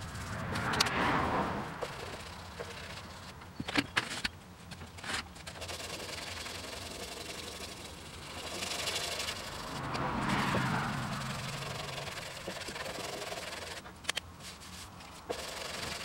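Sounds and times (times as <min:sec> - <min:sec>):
sandpaper rubbing on metal: 0:11.3 - 0:16.0.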